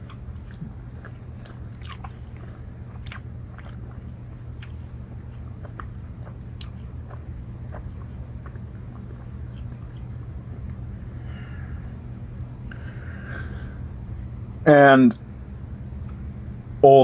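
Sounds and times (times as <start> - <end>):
wet mouth clicks of chewing: 0.0 - 10.8
steady low hum: 0.0 - 17.0.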